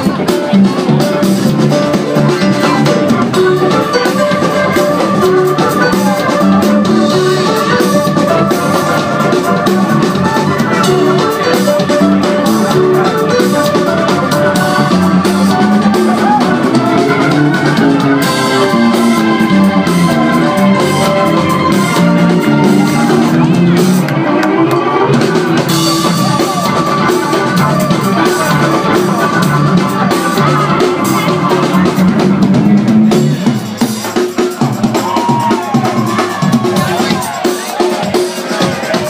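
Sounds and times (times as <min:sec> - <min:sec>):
electric guitar: 0:00.0 - 0:37.3
drum kit beat: 0:00.0 - 0:39.0.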